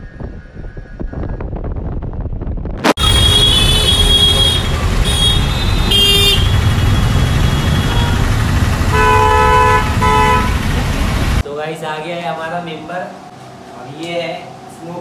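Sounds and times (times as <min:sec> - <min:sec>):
vehicle horns honking: 0:03.0 - 0:11.0
engine rumble: 0:03.0 - 0:11.4.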